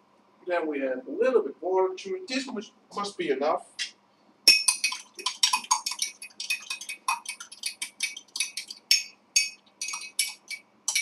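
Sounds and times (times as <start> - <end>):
metal spoon clinking in glass: 4.5 - 11.0.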